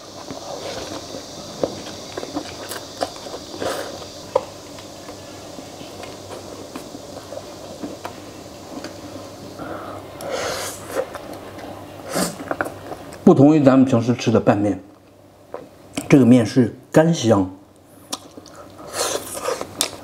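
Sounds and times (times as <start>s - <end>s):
person slurping and chewing noodles: 0.0s - 4.2s, 18.1s - 20.0s.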